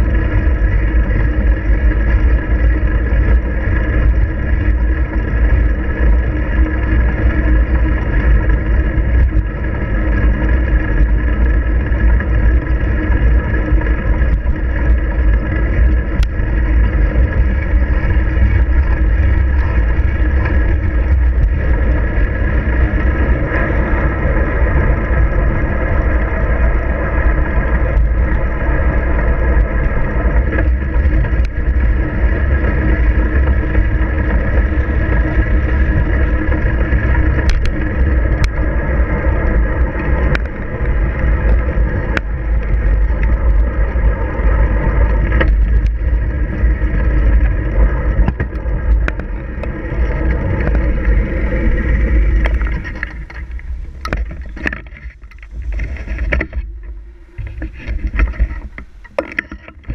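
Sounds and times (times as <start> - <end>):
bike clicks and rattles: 0.0 - 59.9
wind and road rumble: 0.0 - 59.9.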